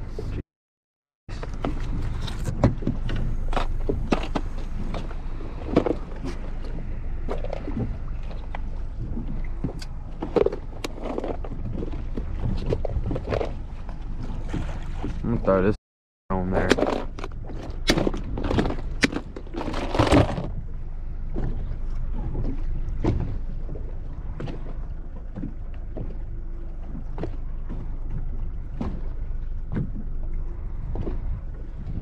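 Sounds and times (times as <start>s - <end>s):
water against boat hull: 1.3s - 32.0s
wind on microphone: 26.9s - 32.0s.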